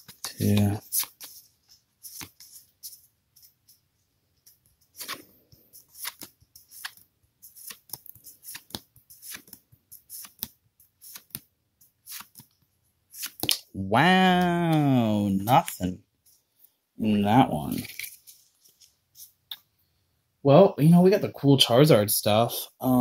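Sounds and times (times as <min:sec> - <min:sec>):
trading cards swishing: 0:00.0 - 0:03.6, 0:04.9 - 0:11.4, 0:12.0 - 0:12.5, 0:13.1 - 0:13.6.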